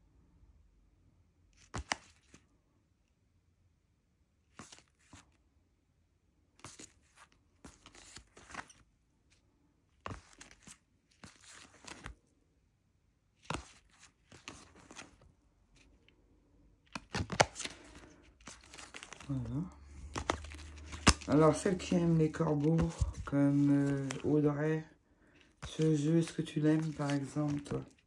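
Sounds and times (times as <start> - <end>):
cards rustling and sliding: 1.6 - 2.5, 4.5 - 5.4, 6.6 - 12.3, 13.4 - 16.2, 16.8 - 28.0.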